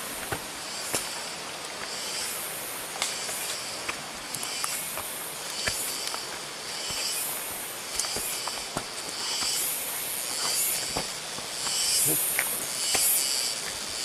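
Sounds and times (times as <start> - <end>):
leaves and clothing rustling: 0.0 - 14.0
steady high hiss: 0.0 - 14.0
footsteps on leaf litter: 3.1 - 13.2.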